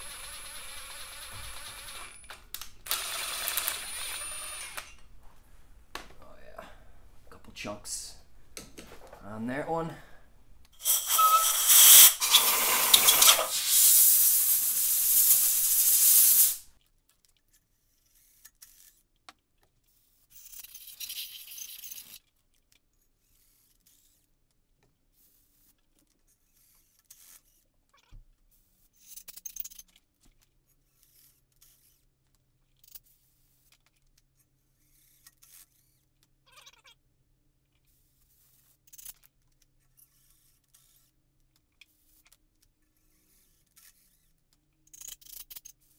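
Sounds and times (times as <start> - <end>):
hand tools clicking: 10.8 - 14.7
compressed air blow gun hissing: 10.8 - 16.7.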